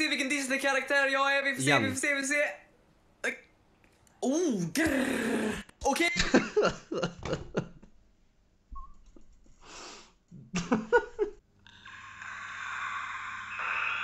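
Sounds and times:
man laughing: 0:06.2 - 0:07.9, 0:10.4 - 0:11.4
breathy exhale: 0:11.7 - 0:14.0.

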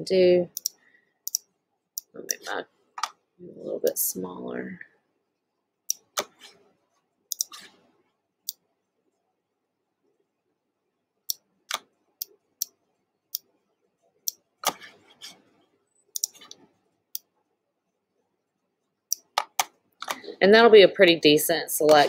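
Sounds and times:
computer mouse clicks: 0:00.5 - 0:02.4, 0:07.3 - 0:07.8, 0:16.1 - 0:17.3, 0:19.1 - 0:20.2.

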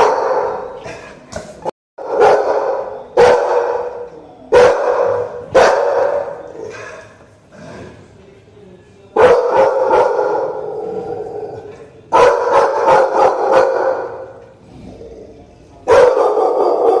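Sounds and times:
dogs barking rapidly: 0:00.0 - 0:00.8, 0:02.0 - 0:07.0, 0:09.2 - 0:10.8, 0:12.1 - 0:14.4, 0:15.9 - 0:17.0.

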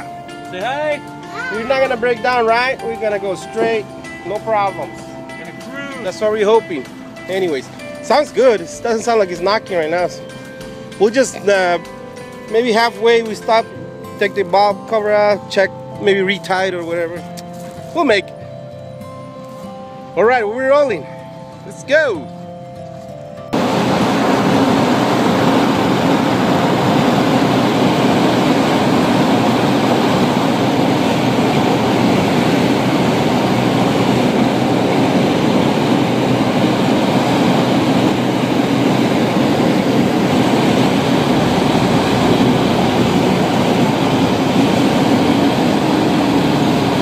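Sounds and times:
vehicle driving at road speed: 0:23.5 - 0:47.0.

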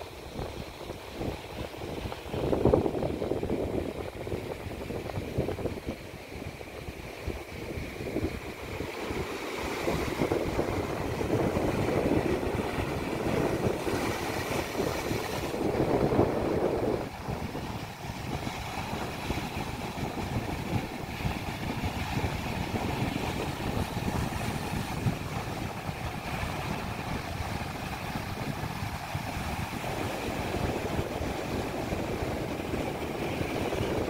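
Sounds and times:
wind buffeting microphone: 0:00.0 - 0:34.0
surf breaking on rocks: 0:07.9 - 0:34.0.

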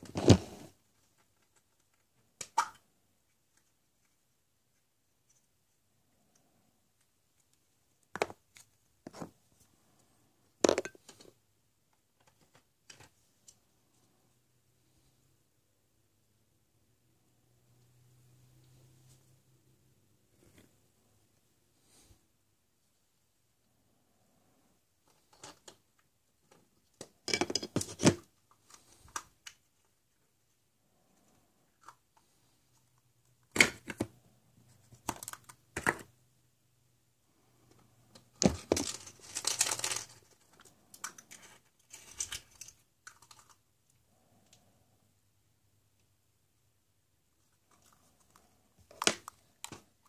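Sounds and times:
plastic eggs clicking and clattering: 0:34.9 - 0:36.1, 0:38.2 - 0:43.7.

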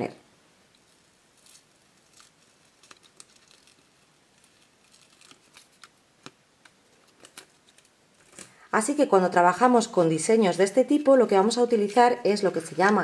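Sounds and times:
vinyl peeling off backing: 0:00.8 - 0:08.6.

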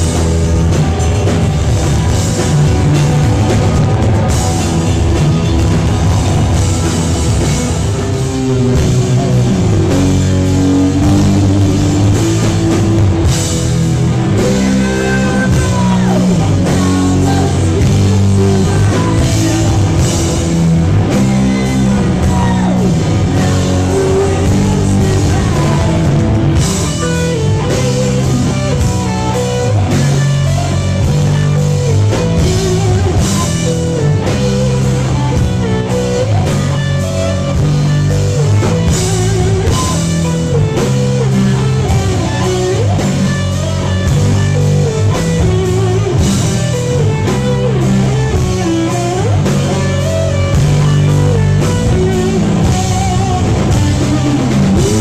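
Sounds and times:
drum kit: 0:00.0 - 0:55.0
electric guitar: 0:00.0 - 0:55.0
rock band playing live: 0:00.0 - 0:55.0.

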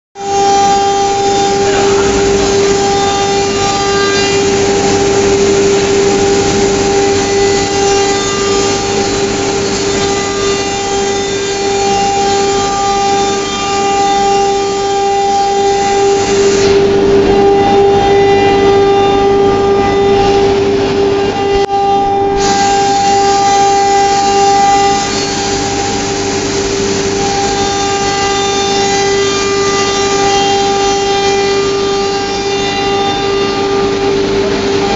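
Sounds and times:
router spindle high whine: 0:00.2 - 0:34.9
cutting and dust extraction hiss: 0:00.6 - 0:17.0, 0:22.4 - 0:30.9.

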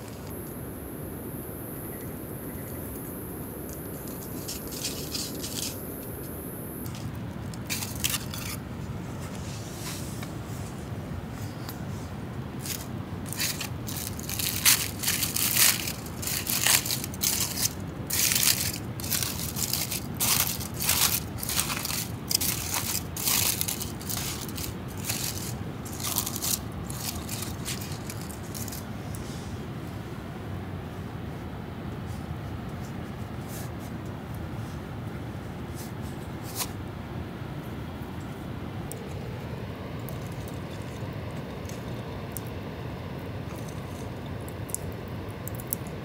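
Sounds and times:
foil crinkling: 0:06.8 - 0:08.6, 0:12.6 - 0:28.9.

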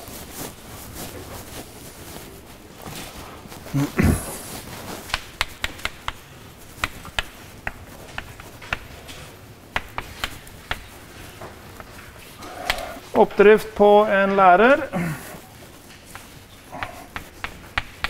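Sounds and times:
faint room noise: 0:00.0 - 0:18.0
chalk tapping on board: 0:05.1 - 0:09.0, 0:09.7 - 0:11.0, 0:15.9 - 0:18.0.

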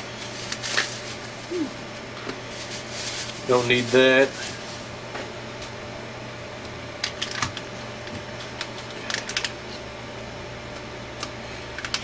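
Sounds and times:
steady low hum: 0:00.0 - 0:12.0
plastic bag crinkling: 0:02.5 - 0:04.8, 0:08.7 - 0:09.6.

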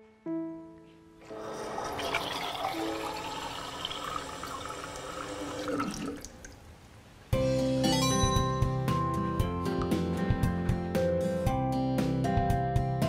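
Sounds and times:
tap water running into plastic can: 0:01.3 - 0:06.6.

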